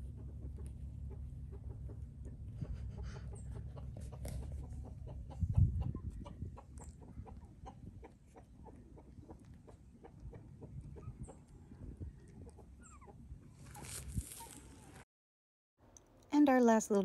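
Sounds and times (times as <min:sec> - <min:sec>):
puppies squeaking and grunting: 0:12.2 - 0:14.5.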